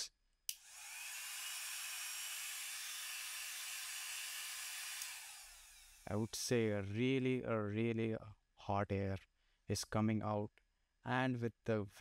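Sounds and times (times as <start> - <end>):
hair dryer blowing air: 0.5 - 6.2
hair dryer switch click: 4.8 - 5.4.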